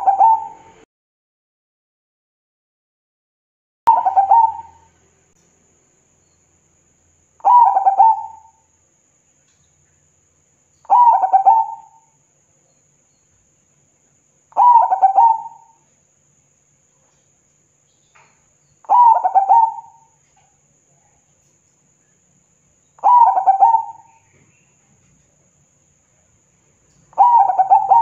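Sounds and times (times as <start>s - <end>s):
dove cooing: 0.0s - 0.8s, 3.9s - 4.9s, 7.4s - 8.6s, 10.9s - 12.1s, 14.6s - 15.8s, 18.9s - 20.2s, 23.0s - 24.4s, 27.1s - 28.0s.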